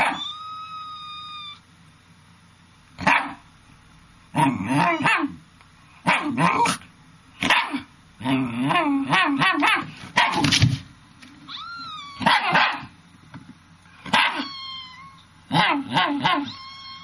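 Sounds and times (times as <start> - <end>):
dog barking and yipping: 0.0 - 0.4, 3.0 - 3.4, 4.7 - 5.4, 6.0 - 6.8, 7.4 - 7.9, 9.1 - 10.5, 12.2 - 12.9, 14.1 - 14.6, 15.5 - 17.0
dog whining: 0.0 - 1.6, 4.5 - 5.3, 11.5 - 12.9, 14.1 - 17.0.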